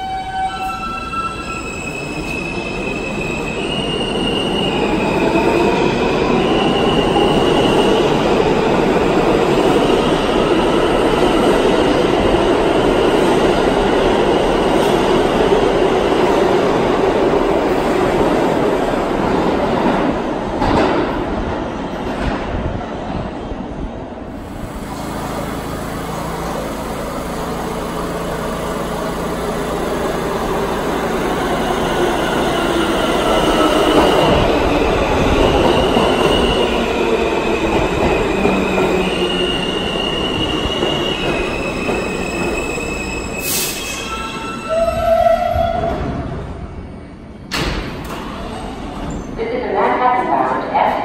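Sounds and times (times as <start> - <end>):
subway train braking: 0.0 - 51.0.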